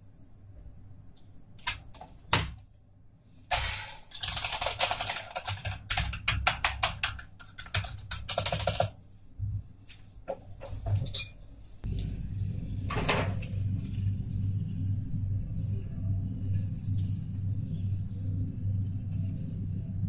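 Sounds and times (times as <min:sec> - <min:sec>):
typing on keyboard: 0:04.2 - 0:09.0.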